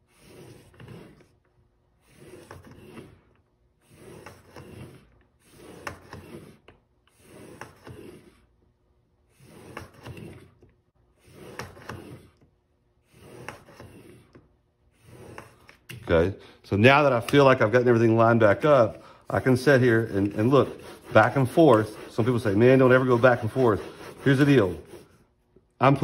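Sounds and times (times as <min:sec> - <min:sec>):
blade scraping on abrasive: 0:00.0 - 0:01.4, 0:02.0 - 0:08.5, 0:09.3 - 0:16.2, 0:17.0 - 0:25.2.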